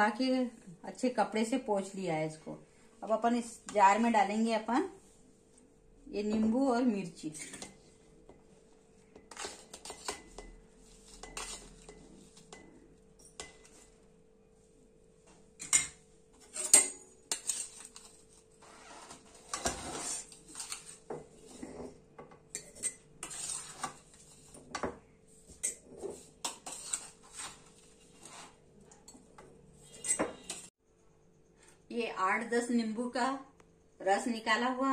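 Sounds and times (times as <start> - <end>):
spoon scraping plate and jar: 9.2 - 13.9, 15.6 - 24.9, 25.5 - 30.7.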